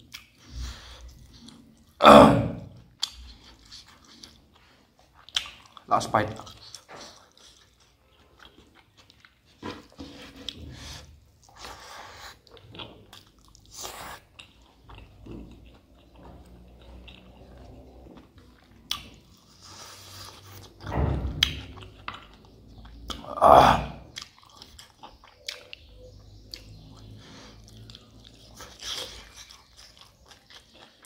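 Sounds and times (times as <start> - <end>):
person chewing and lip smacking: 0.0 - 2.0, 2.8 - 10.7, 11.3 - 20.8, 24.0 - 31.0.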